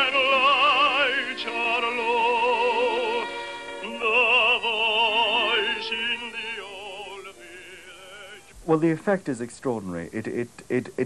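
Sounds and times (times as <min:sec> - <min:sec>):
operatic singing with vibrato: 0:00.0 - 0:08.8.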